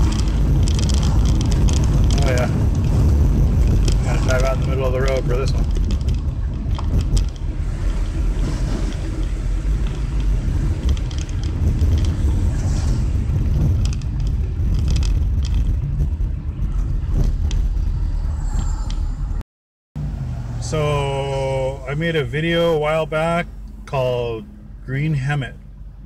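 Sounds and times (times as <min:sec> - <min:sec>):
engine and road rumble: 0:00.0 - 0:19.4, 0:20.0 - 0:26.0.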